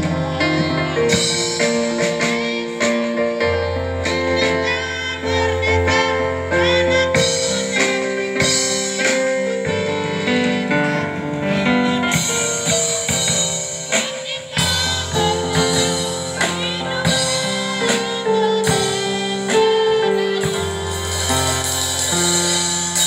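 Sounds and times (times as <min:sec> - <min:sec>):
women's choir singing: 0:00.0 - 0:04.2.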